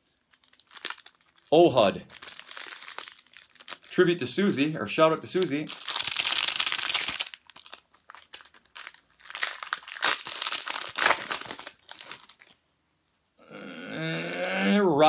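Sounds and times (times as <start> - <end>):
wrapper crinkling and tearing: 0.0 - 4.0, 5.1 - 12.6.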